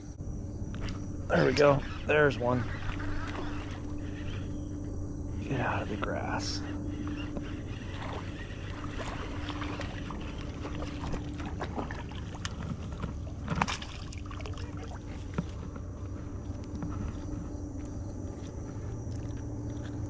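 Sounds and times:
fishing reel ticking: 0.7 - 11.5
fish splashing in water: 7.6 - 15.6.

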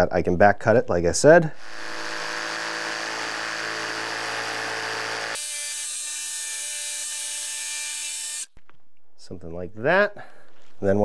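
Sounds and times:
jigsaw cutting wood: 1.6 - 8.5.

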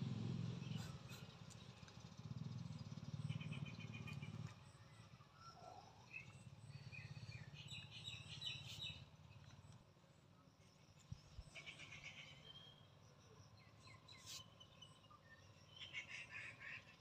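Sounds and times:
birds chirping in trills: 3.1 - 9.4, 11.0 - 17.0.

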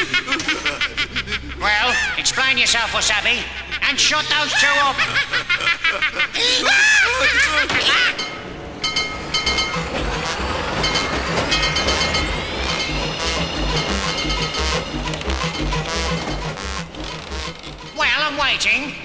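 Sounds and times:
cartoon machinery chugging and clanking: 0.0 - 2.1, 7.1 - 19.0
steady ringing tones: 8.0 - 18.8.

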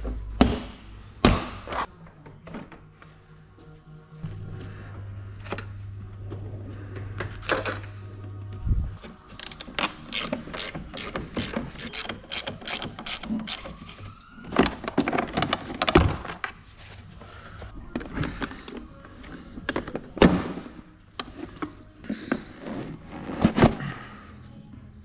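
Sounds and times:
hand ratchet clicking: 9.4 - 13.6.

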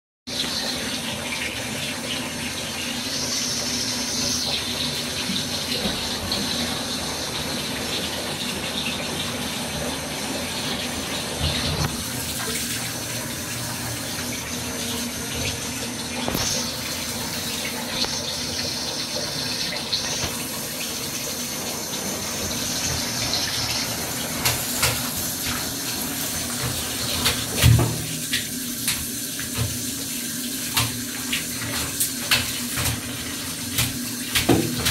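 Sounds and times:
tap water running into bathtub: 0.3 - 34.9
knocks and splashes: 26.4 - 30.0, 30.6 - 34.9.

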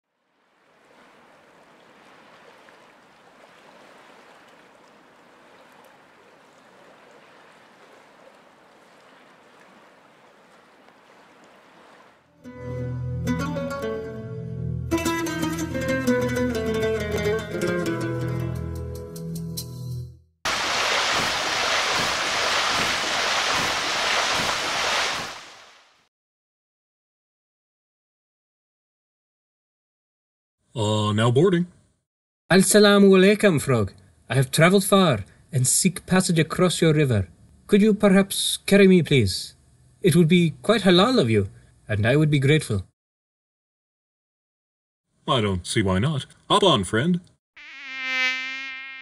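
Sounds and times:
stream water rushing: 0.2 - 12.3, 20.5 - 26.0
plucked string music: 12.5 - 18.9.

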